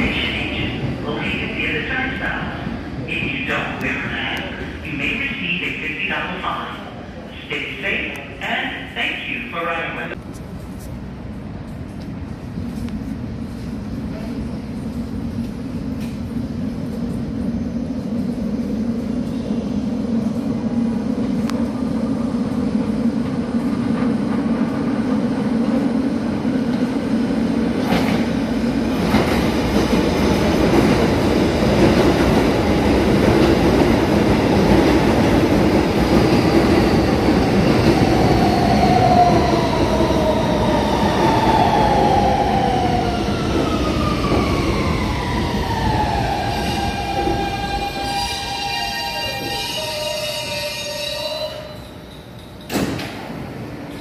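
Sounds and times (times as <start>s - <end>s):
train wheels rumbling on rails: 10.1s - 54.0s.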